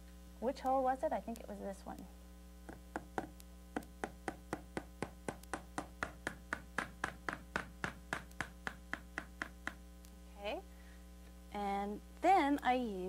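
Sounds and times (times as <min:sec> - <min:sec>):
hammer driving nail into wood: 0:02.7 - 0:09.8.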